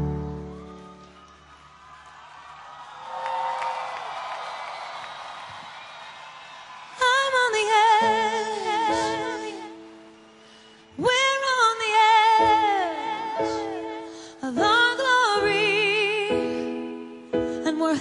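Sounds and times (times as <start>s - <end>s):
piano chords: 0.0s - 1.2s, 7.4s - 18.0s
woman singing with vibrato: 7.0s - 10.2s, 10.9s - 18.0s.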